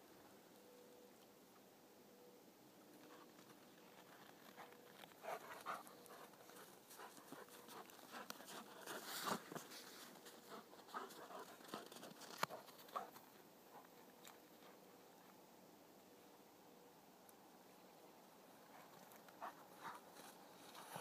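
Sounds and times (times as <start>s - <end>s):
dog panting faintly: 4.5s - 9.6s.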